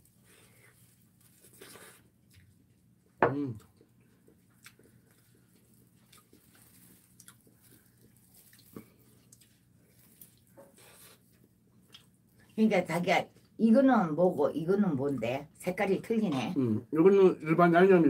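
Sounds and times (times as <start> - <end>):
soft chewing: 0.0 - 13.6.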